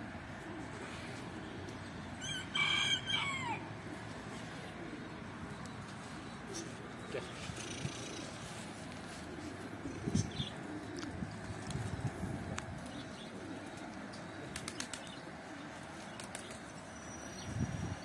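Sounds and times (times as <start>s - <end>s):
pigeon wings flapping: 14.4s - 15.2s, 15.9s - 16.7s.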